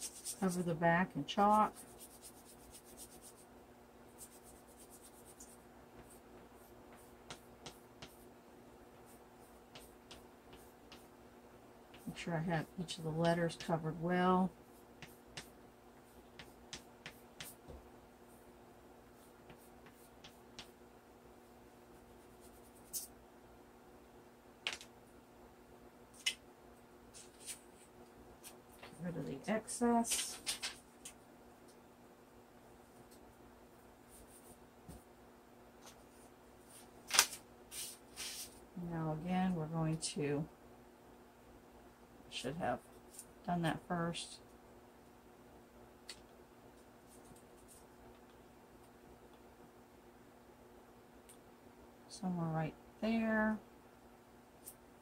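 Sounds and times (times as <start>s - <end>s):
chalk scratching on paper: 0.0s - 3.5s, 4.1s - 8.3s, 8.9s - 11.1s, 14.6s - 17.6s, 19.2s - 20.7s, 22.0s - 23.1s, 27.1s - 27.8s, 34.1s - 34.6s, 37.7s - 38.6s
faint steady hum: 0.0s - 55.0s.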